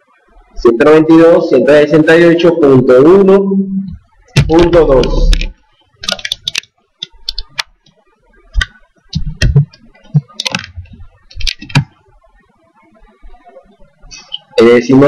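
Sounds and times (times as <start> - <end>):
keyboard and mouse clicking: 3.9 - 12.0.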